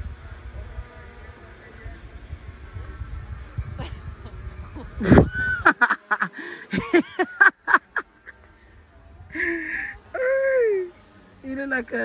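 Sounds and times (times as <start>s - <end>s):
person laughing in honking bursts: 3.8s - 8.5s.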